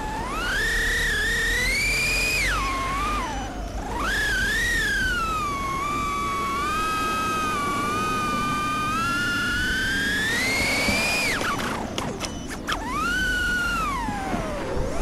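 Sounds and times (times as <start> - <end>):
drone propellers whining: 0.0 - 15.0.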